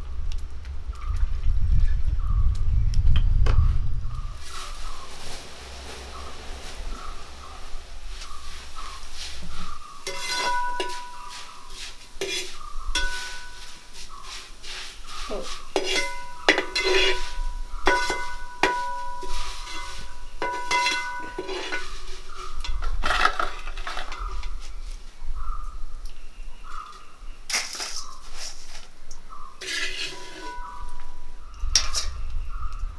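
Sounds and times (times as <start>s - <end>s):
metal utensil clanking on pot: 10.0s - 11.6s, 12.2s - 13.8s, 15.8s - 24.6s, 29.6s - 32.3s.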